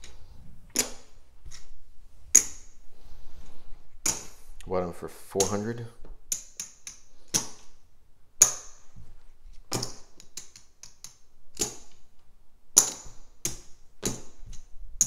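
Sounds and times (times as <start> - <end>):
casino chips clacking: 6.3 - 7.8, 9.8 - 12.0.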